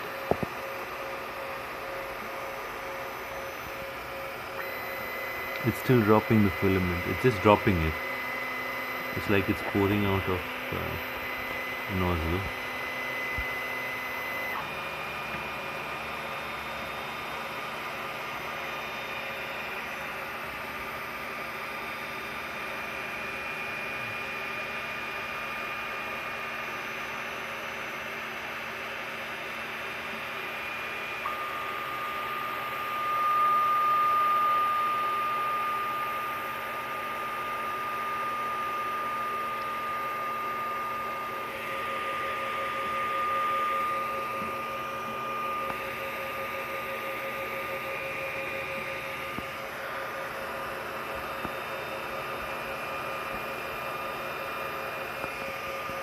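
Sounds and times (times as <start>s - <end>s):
fans humming: 0.0s - 56.0s
stepper motors whining: 4.3s - 17.4s.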